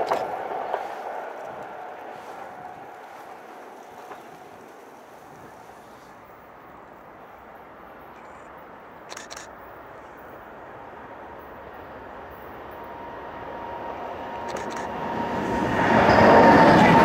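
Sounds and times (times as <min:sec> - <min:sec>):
distant train rumble: 0:00.0 - 0:17.0
electric train running: 0:11.0 - 0:17.0.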